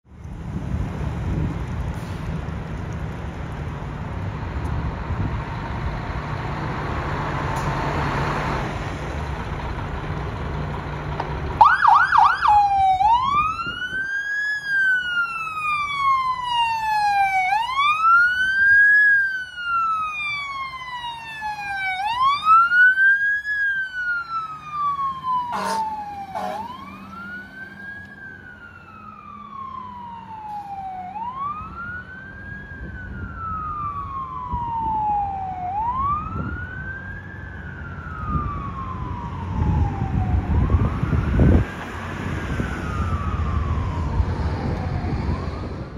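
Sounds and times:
diesel engine rumbling: 0:00.1 - 0:45.9
siren wailing: 0:11.6 - 0:45.9.

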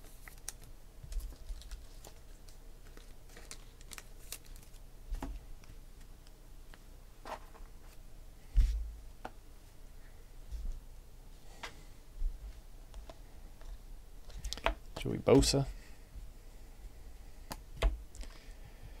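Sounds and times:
cards clicking and tapping: 0:14.3 - 0:15.6.

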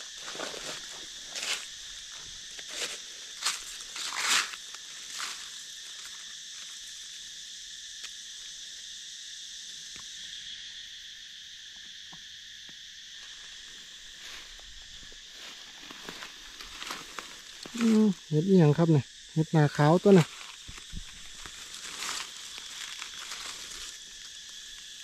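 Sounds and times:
insect chorus buzzing: 0:00.0 - 0:25.0
rustles in dry leaf litter: 0:02.5 - 0:06.6, 0:13.7 - 0:18.4, 0:19.6 - 0:25.0.

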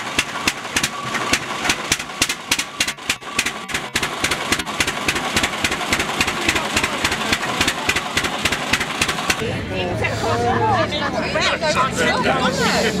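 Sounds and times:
tractor engine running: 0:00.0 - 0:09.9.

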